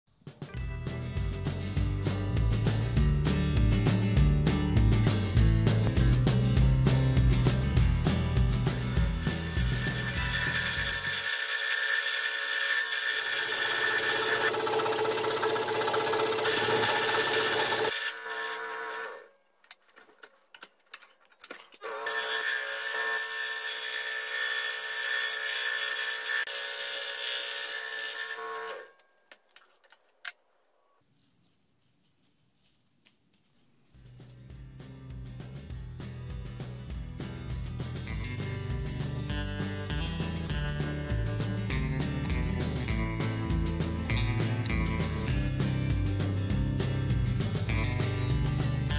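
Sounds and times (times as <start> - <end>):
scroll saw cutting wood: 8.6 - 19.4, 21.8 - 29.0.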